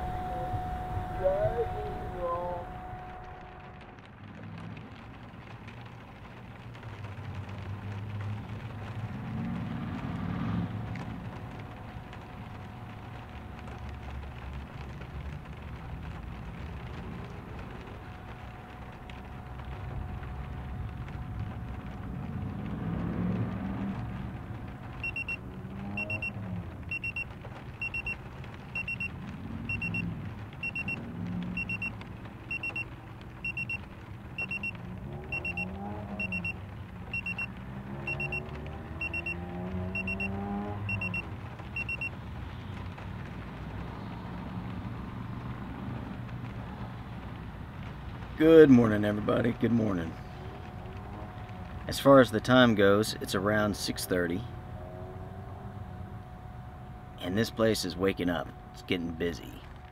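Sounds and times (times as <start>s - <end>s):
low steady rumble: 0.0s - 59.9s
phone alarm beeps: 25.0s - 25.4s, 26.0s - 26.3s, 26.9s - 27.2s, 27.8s - 28.2s, 28.8s - 29.1s, 29.7s - 30.0s, 30.6s - 31.0s, 31.6s - 31.9s, 32.5s - 32.8s, 33.4s - 33.8s, 34.4s - 34.7s, 35.3s - 36.6s, 37.2s - 37.5s, 38.1s - 38.4s, 39.0s - 39.4s, 40.0s - 40.3s, 40.9s - 41.2s, 41.8s - 42.1s.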